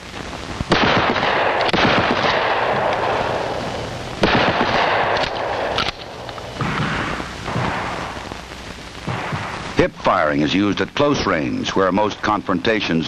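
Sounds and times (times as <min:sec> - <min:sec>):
shotgun shots: 0:00.7 - 0:08.4, 0:09.0 - 0:09.9.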